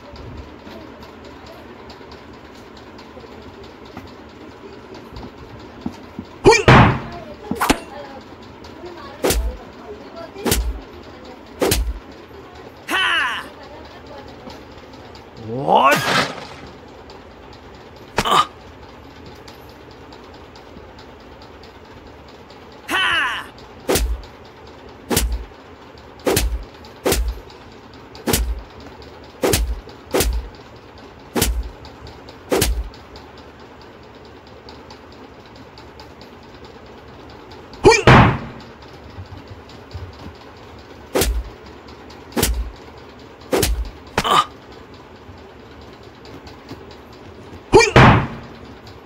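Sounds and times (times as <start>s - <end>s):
sharp deep thumps: 6.5s - 7.9s, 11.6s - 12.0s, 25.1s - 25.5s, 26.3s - 27.4s, 29.4s - 30.5s, 32.5s - 33.0s, 37.9s - 38.6s, 41.2s - 41.5s, 42.4s - 42.8s, 43.5s - 44.0s, 47.8s - 48.6s.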